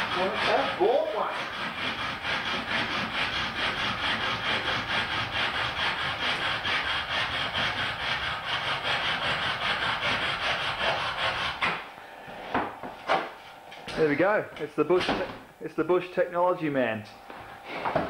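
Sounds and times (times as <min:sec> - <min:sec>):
bow saw cutting wood: 0:00.0 - 0:14.1.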